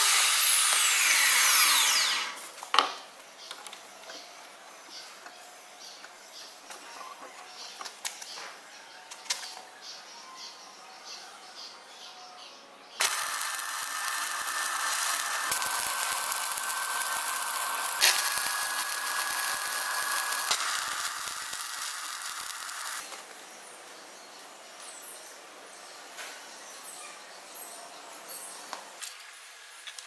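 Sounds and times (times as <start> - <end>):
welding arc crackling and sizzling: 0.0 - 2.4, 13.0 - 23.4.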